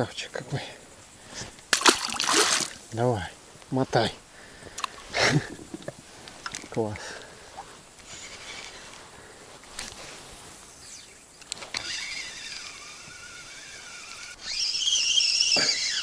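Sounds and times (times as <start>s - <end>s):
fishing reel whirring: 8.0s - 9.0s, 10.7s - 16.0s
sharp reel clicks: 10.8s - 16.0s.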